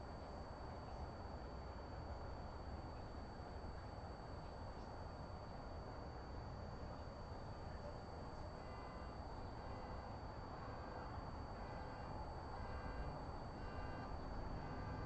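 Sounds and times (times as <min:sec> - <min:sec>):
low rumble and hiss: 0:00.0 - 0:15.0
thin high whine: 0:00.0 - 0:15.0
faint short tones: 0:08.4 - 0:15.0.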